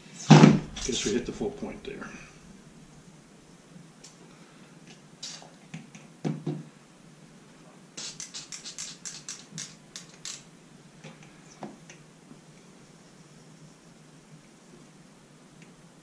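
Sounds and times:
sharp plastic clicks: 0:08.0 - 0:10.4.

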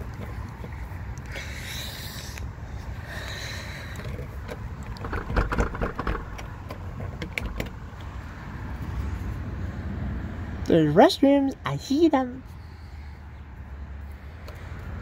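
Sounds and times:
door clicking and knocking: 0:04.9 - 0:07.8.

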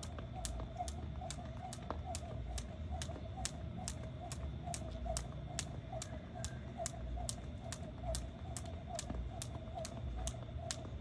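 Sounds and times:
jump rope slapping pavement: 0:00.0 - 0:11.0.

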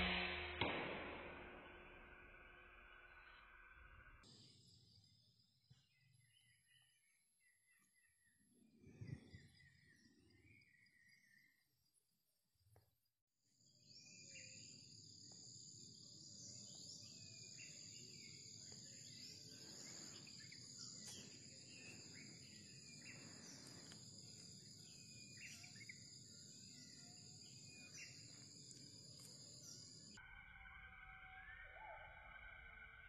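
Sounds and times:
high-pitched insect drone: 0:00.0 - 0:02.9
short insect chirps: 0:13.9 - 0:31.9.

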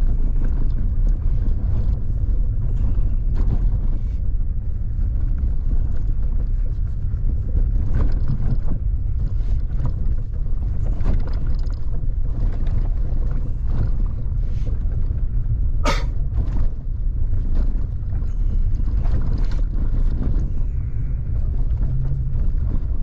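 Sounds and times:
wind buffeting and road noise: 0:00.0 - 0:23.0
knocks and rattles: 0:05.0 - 0:23.0.

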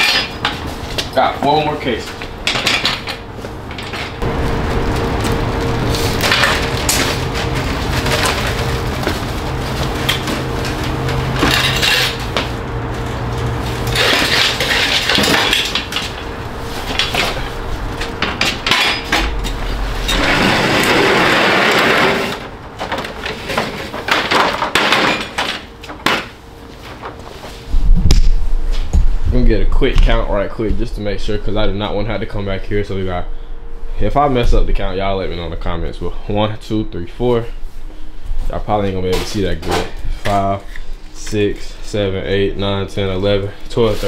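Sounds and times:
crates and hand truck clattering: 0:00.0 - 0:27.2
low steady hum: 0:00.0 - 0:44.0.

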